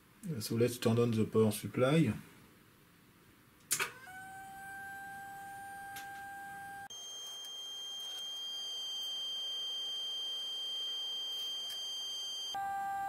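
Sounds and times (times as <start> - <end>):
high-pitched electronic whine: 5.0 - 13.0.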